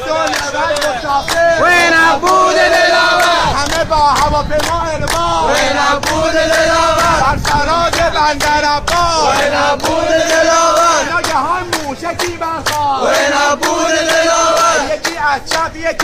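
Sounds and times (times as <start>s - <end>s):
men singing in unison: 0.0s - 16.0s
rhythmic hand clapping: 0.0s - 16.0s.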